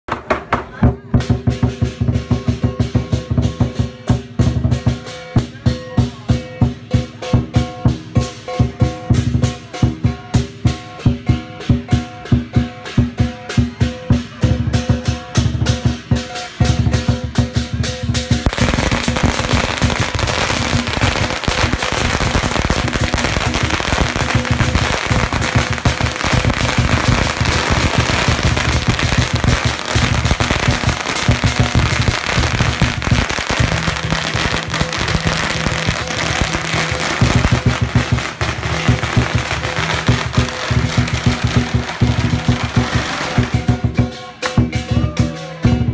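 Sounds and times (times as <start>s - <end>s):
drum cymbals and gong rhythm: 0.8s - 45.9s
firecrackers crackling: 16.7s - 44.9s.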